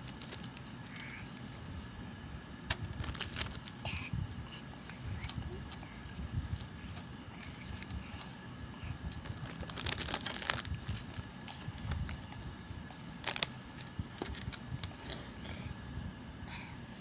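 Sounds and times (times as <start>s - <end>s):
plastic bags crinkling: 0.0s - 0.7s, 2.9s - 3.8s, 9.2s - 12.3s, 13.2s - 13.5s.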